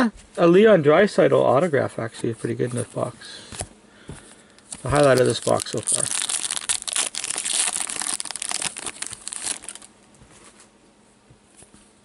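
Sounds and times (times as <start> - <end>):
cards rustling: 2.9 - 10.7
foil wrapper crinkling and tearing: 4.6 - 9.9.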